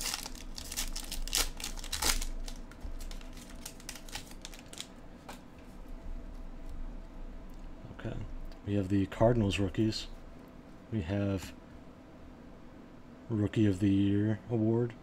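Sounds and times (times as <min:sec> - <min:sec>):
wrapper tearing and crinkling: 0:00.0 - 0:04.9.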